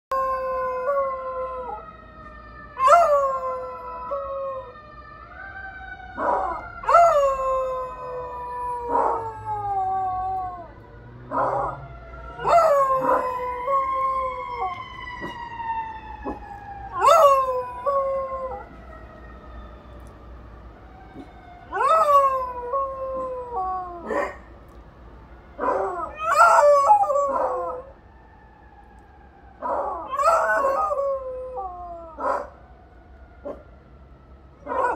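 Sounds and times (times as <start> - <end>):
fire truck sirens wailing: 0.1 - 34.9
dog howling: 2.8 - 4.7, 6.2 - 10.7, 11.3 - 15.4, 16.2 - 18.8, 21.7 - 24.4, 25.6 - 27.9, 29.6 - 32.5, 34.6 - 34.9.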